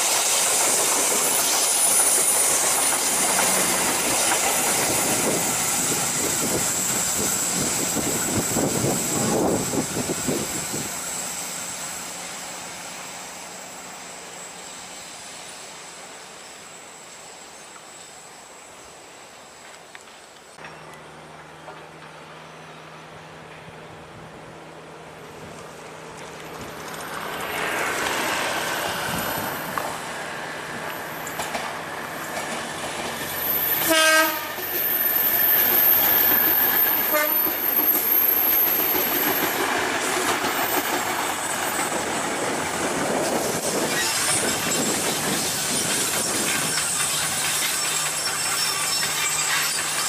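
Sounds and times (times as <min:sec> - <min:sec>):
train wheels clattering over rails: 0:00.0 - 0:11.0, 0:26.1 - 0:34.0, 0:34.6 - 0:50.0
high wheel squeal: 0:00.0 - 0:12.3, 0:26.7 - 0:50.0
train horn blast: 0:33.8 - 0:34.7, 0:37.0 - 0:37.7.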